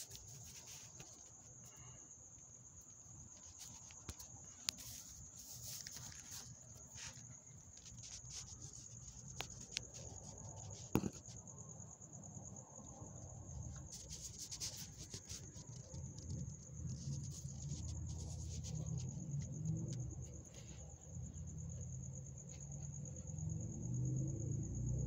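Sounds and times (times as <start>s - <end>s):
crickets trilling: 0.0s - 25.0s.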